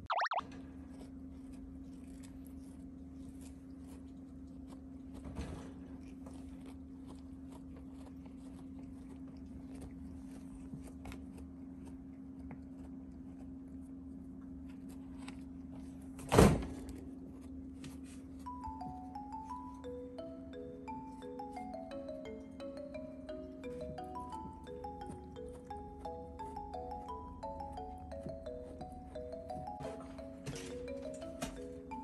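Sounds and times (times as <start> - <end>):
cat chewing toy crunching clicks: 0.8 - 16.1.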